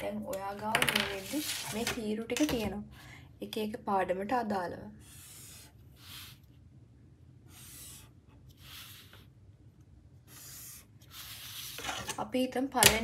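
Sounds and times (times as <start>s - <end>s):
pen scratching on paper: 5.0s - 6.5s, 7.5s - 9.3s, 10.2s - 12.0s.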